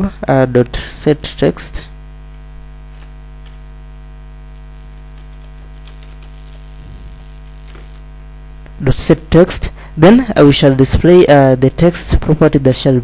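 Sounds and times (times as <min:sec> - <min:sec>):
electrical mains hum: 0:00.0 - 0:13.0
keyboard typing clicks: 0:05.1 - 0:06.6.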